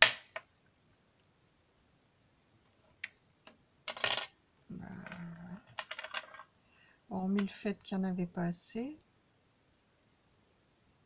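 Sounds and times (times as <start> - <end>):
person humming: 4.7 - 5.7
small objects clattering on table: 5.0 - 6.5.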